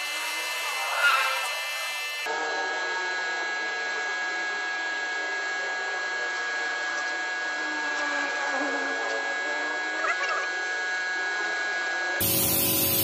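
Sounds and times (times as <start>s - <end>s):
multi-tone whine: 0.0s - 13.0s
spray gun hissing: 12.2s - 13.0s.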